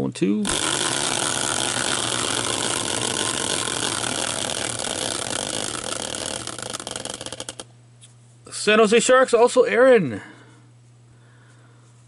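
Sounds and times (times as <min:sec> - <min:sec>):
spinning wheel whirring and ticking: 0:00.5 - 0:07.7.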